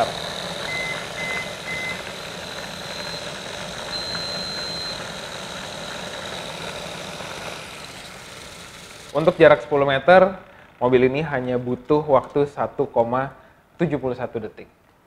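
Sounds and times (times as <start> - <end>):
small electric motor whirring: 0.0 - 11.8
long high beep: 0.6 - 2.2, 2.8 - 6.3
short beeps: 2.9 - 5.0.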